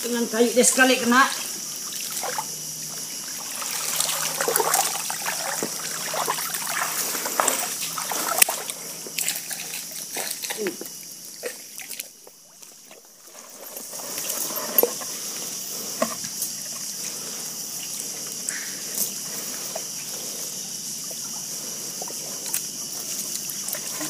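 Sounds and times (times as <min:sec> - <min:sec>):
steady high hiss: 0:00.0 - 0:24.0
water trickling from net: 0:01.8 - 0:14.4
wet splats and squelches: 0:01.9 - 0:02.5, 0:03.5 - 0:12.8.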